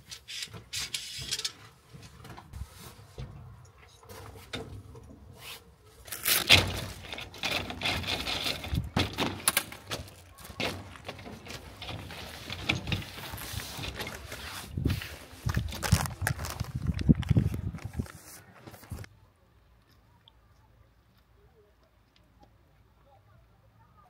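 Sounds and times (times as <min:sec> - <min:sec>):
camp cot frame clattering: 0:00.0 - 0:19.1.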